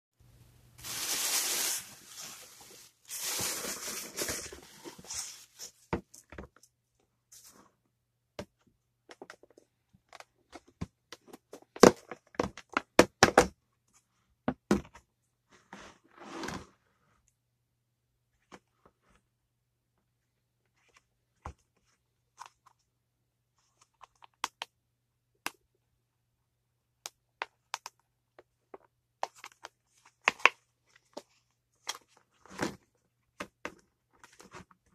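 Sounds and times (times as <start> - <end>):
plastic bag crinkling: 0.8 - 5.4.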